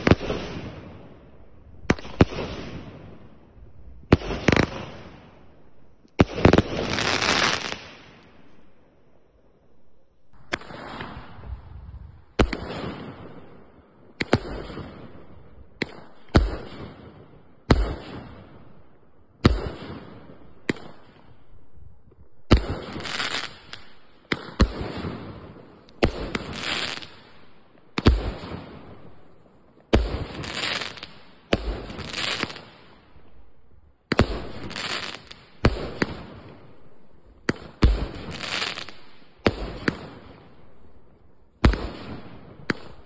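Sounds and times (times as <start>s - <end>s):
crackle of bursting fireworks: 0.0s - 9.4s, 10.0s - 43.0s
firework bangs: 3.9s - 5.2s, 41.6s - 43.0s.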